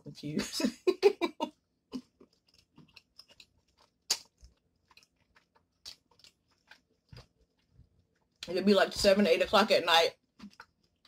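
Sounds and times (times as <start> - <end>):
person chewing noodles: 1.9 - 8.5, 10.2 - 11.0
wet mouth clicks and smacks: 2.2 - 7.3, 10.4 - 11.0.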